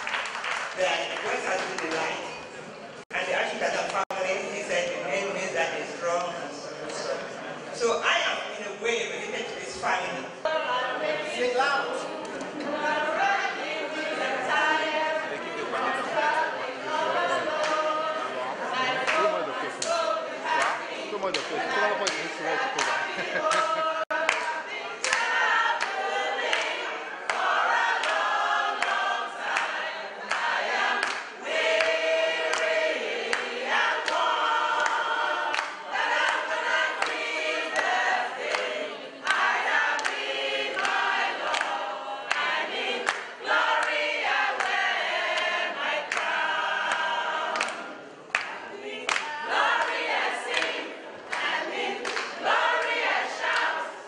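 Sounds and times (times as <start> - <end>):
women singing in chorus: 10.4 - 54.0.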